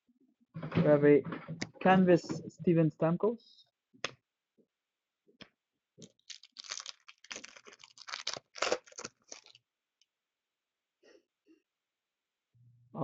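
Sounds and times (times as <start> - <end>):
wrapper tearing and crinkling: 6.0 - 9.6.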